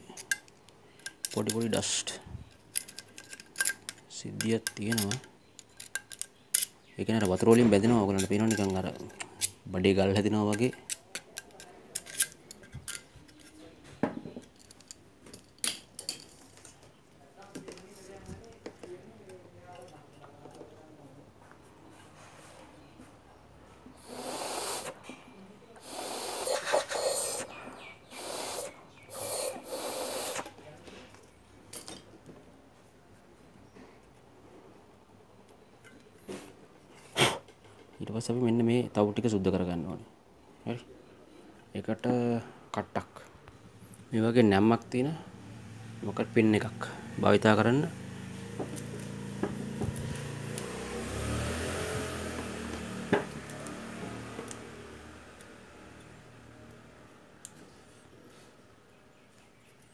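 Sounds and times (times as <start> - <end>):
small metal parts clicking: 0.0 - 1.8, 2.5 - 7.5, 8.1 - 9.6, 10.5 - 13.6, 14.4 - 16.8
air hissing through iron: 24.0 - 25.0, 25.8 - 30.6.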